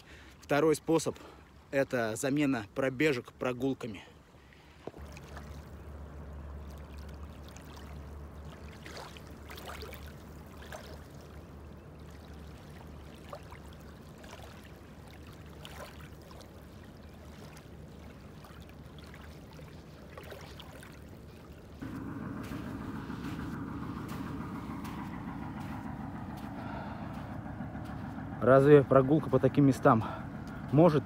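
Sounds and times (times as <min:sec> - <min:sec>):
small waves lapping on shore: 0:00.0 - 0:31.0
faint little splashes: 0:03.9 - 0:28.4
steady low rumble: 0:04.9 - 0:31.0.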